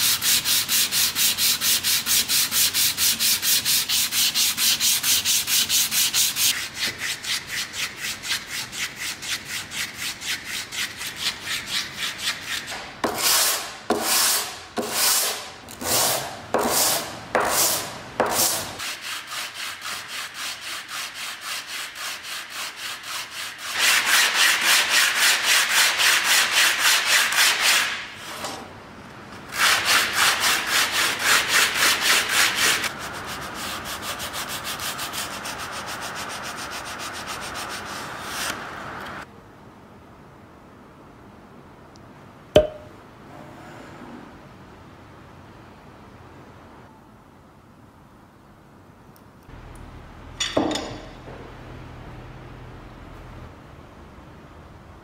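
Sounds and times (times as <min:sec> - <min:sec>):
sandpaper rubbing on wood: 0:00.0 - 0:28.0, 0:29.5 - 0:38.5.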